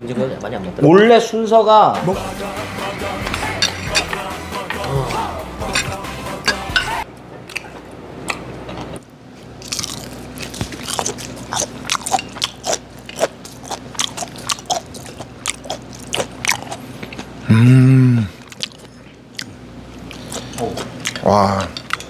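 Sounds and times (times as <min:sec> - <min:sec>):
person humming mmm: 0:02.3 - 0:07.0, 0:17.4 - 0:18.4
close chewing and crunching food: 0:03.3 - 0:17.6, 0:18.2 - 0:22.0.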